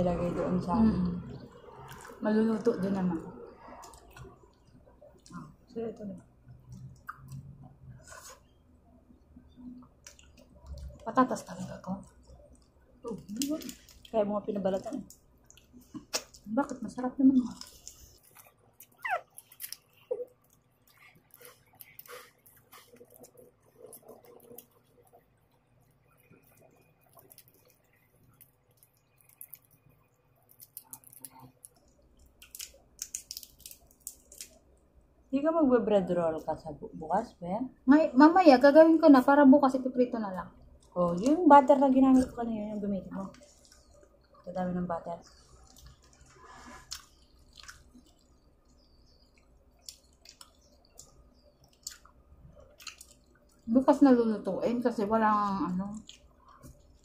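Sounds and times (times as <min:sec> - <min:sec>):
eating clicks and wet smacks: 0:03.6 - 0:07.8, 0:09.1 - 0:16.8, 0:17.4 - 0:35.0, 0:43.3 - 0:44.5, 0:45.2 - 0:53.7, 0:55.9 - 0:57.0
wet mouth clicks and lip smacks: 0:15.4 - 0:16.5, 0:49.4 - 0:53.6.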